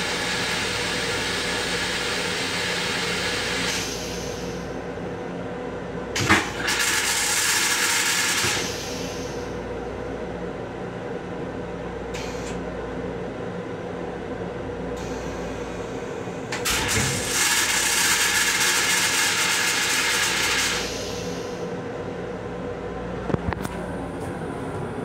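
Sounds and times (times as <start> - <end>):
toilet flushing water hiss: 0.0 - 4.6, 6.2 - 9.5, 16.6 - 21.6
equipment hum: 0.0 - 25.0.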